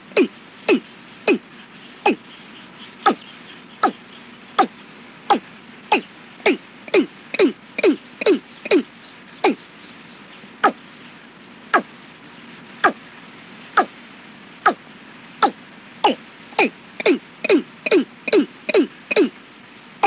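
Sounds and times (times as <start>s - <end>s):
steady hiss: 0.0s - 20.0s
bird calls with falling notes: 2.9s - 10.0s.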